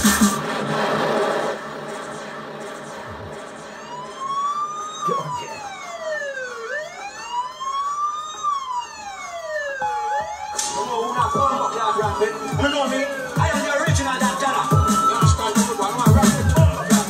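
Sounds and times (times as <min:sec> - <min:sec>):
siren wail: 0:00.0 - 0:17.0.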